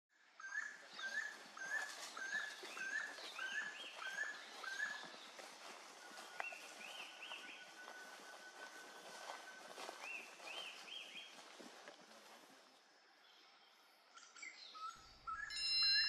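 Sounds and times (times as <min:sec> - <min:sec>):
thin high tone: 0:15.5 - 0:16.0.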